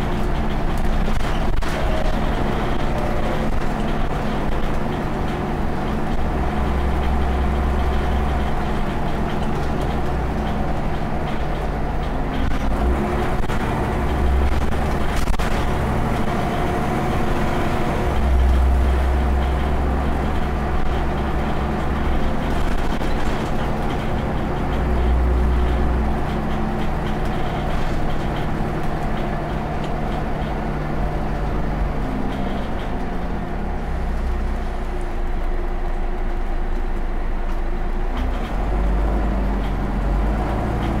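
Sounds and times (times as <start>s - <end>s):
bus diesel engine running: 0.0s - 41.0s
road noise: 0.0s - 41.0s.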